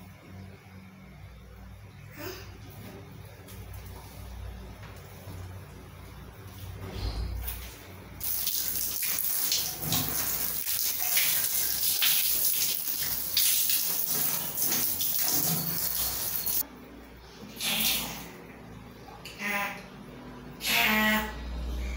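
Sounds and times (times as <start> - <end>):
shower water spraying: 8.2 - 16.6.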